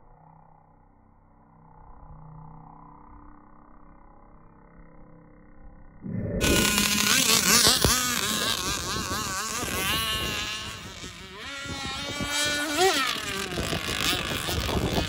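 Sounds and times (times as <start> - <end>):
model boat motor buzzing: 6.4 - 15.0.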